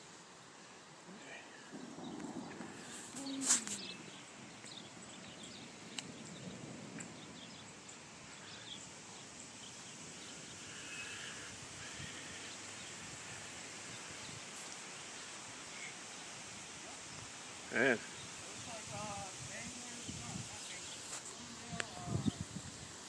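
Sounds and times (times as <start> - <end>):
steady outdoor hiss: 0.0 - 23.0
faint bird chirps: 1.1 - 18.8.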